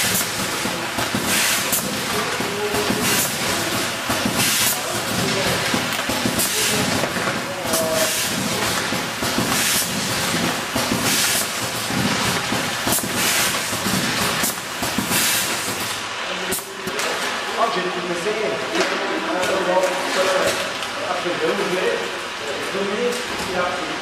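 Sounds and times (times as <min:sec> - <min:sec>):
conveyor line clattering: 0:00.0 - 0:17.0.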